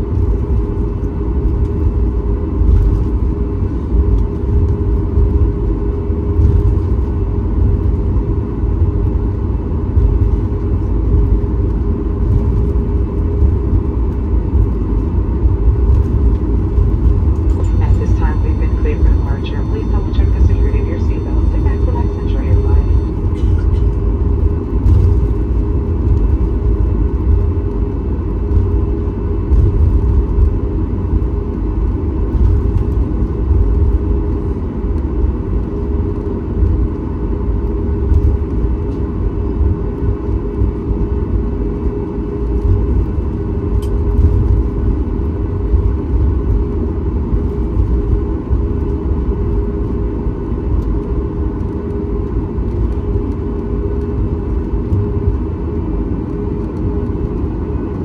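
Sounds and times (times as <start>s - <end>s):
aircraft cabin engine rumble: 0.0s - 58.0s.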